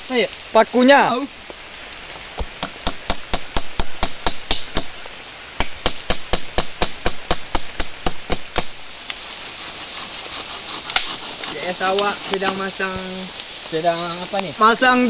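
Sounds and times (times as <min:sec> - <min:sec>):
rain hiss: 0:00.0 - 0:15.0
hammering nail into wood: 0:02.4 - 0:04.9, 0:05.6 - 0:08.8.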